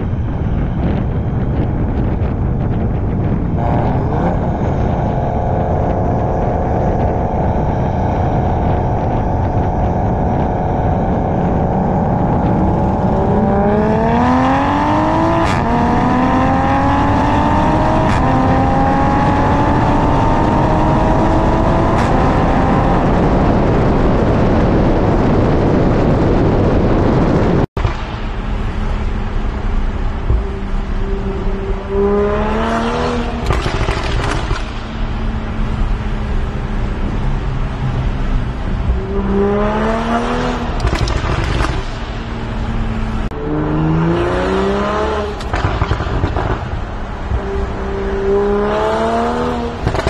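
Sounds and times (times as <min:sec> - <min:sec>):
car engine droning and accelerating: 0:00.0 - 0:50.0
exhaust cracks: 0:33.1 - 0:43.4, 0:45.2 - 0:47.5, 0:49.7 - 0:50.0.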